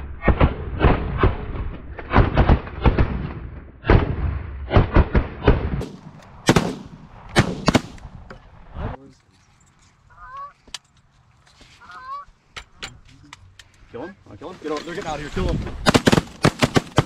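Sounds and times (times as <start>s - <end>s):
shotgun shots: 2.1s - 8.1s, 15.8s - 17.0s.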